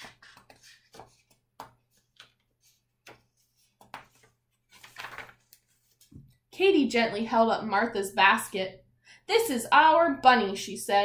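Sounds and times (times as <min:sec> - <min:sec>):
page turning rustle: 0:00.0 - 0:06.2.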